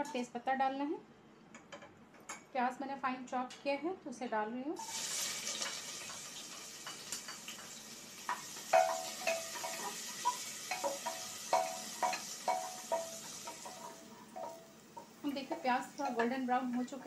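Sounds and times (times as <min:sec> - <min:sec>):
onion sizzling in hot oil: 0:04.8 - 0:17.0
spatula clinking against pot: 0:08.3 - 0:16.9.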